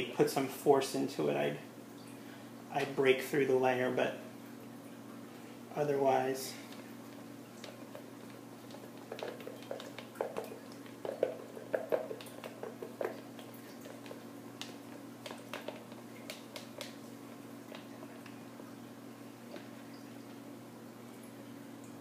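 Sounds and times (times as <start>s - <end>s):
spatula scraping soap batter: 6.7s - 18.4s.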